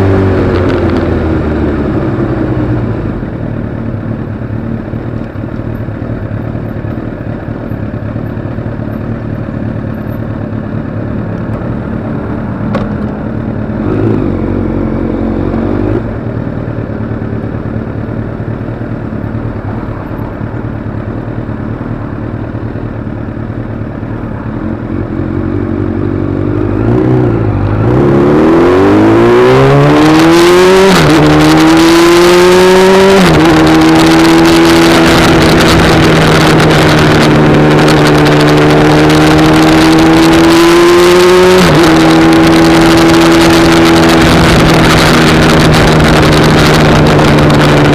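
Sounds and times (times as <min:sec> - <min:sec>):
vehicle engine accelerating: 0:00.0 - 0:47.9.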